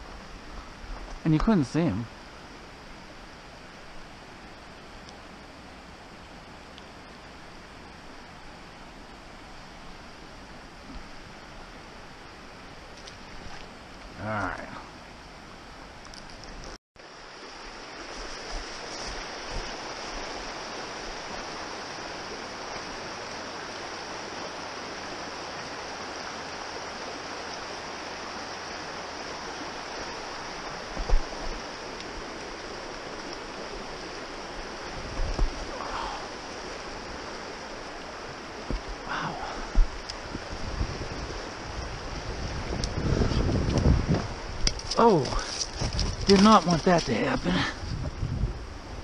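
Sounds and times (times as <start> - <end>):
brook water rushing: 0.0 - 49.0.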